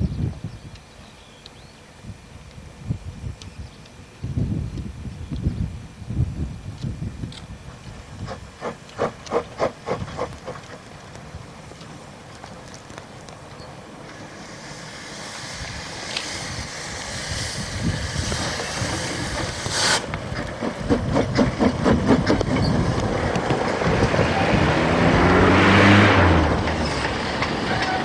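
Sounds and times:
steam locomotive passing: 7.6 - 28.0
steam hiss: 8.0 - 10.8, 14.0 - 24.2
rhythmic exhaust beats: 17.3 - 25.2.

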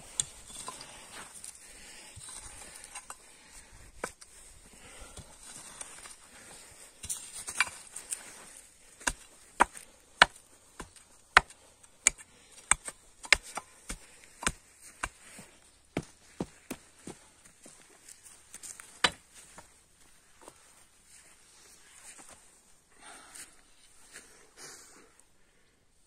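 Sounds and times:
sharp thuds on bare soil: 8.9 - 17.3, 18.6 - 19.7.

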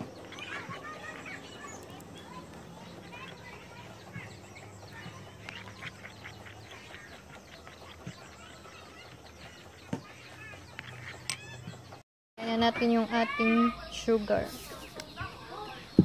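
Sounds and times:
spatula stirring wet batter: 0.0 - 12.0.

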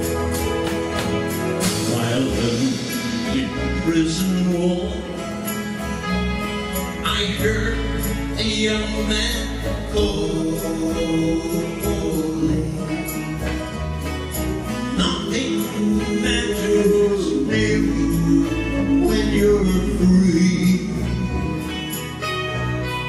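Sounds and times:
acoustic guitar strumming: 0.0 - 23.0
men singing into microphones: 1.8 - 5.4, 7.0 - 13.6, 14.9 - 21.3.

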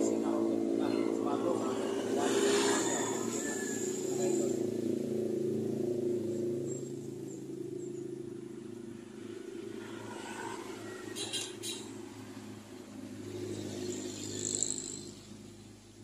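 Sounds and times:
vehicle engine running: 0.0 - 10.2.

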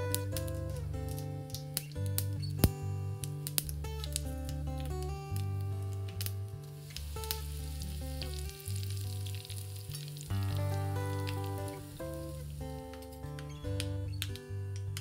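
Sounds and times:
background music with bass: 0.0 - 15.0
hot oil sizzling and crackling: 3.3 - 14.3.

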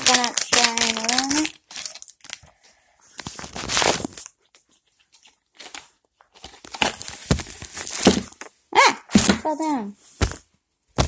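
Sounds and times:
plastic packaging crinkling: 0.0 - 8.5.

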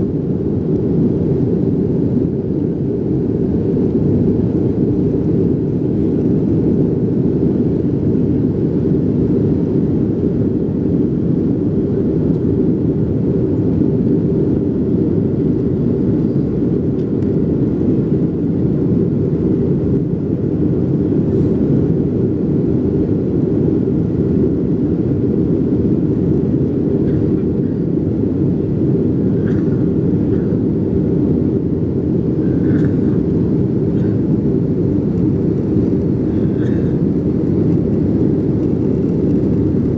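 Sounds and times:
jet engine drone in cabin: 0.0 - 39.9
rushing air: 26.9 - 39.9.

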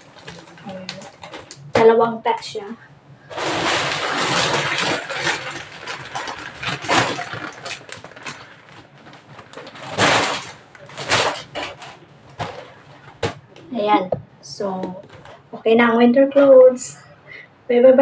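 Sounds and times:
plastic bags crinkling and rustling: 0.0 - 1.8, 3.3 - 13.7, 14.9 - 15.4.

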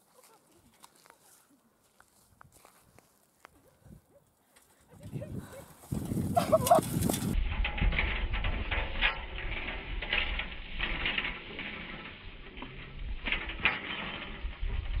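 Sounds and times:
wind buffeting microphone: 4.9 - 8.7.

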